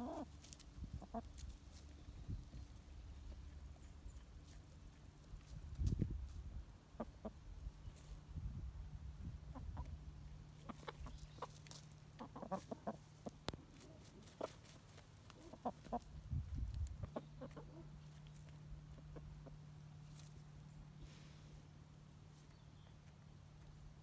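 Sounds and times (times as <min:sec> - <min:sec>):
hens clucking: 0:00.0 - 0:04.8, 0:06.8 - 0:08.2, 0:09.2 - 0:20.8.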